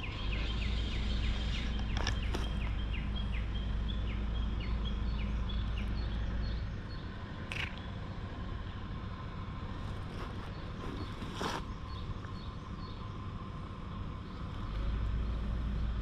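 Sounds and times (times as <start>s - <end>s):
bird chirping: 0.0s - 8.8s, 9.8s - 13.2s
brief rustle: 9.8s - 11.7s.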